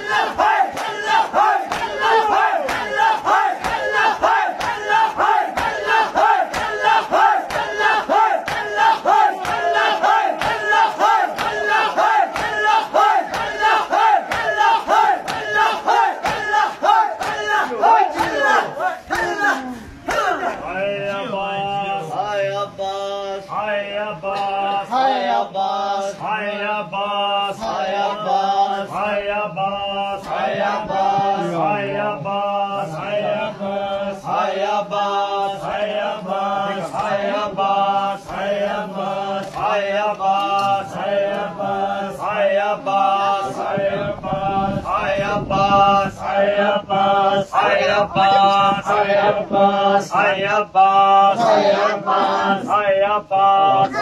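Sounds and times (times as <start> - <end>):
men chanting a lament: 0.0 - 54.0.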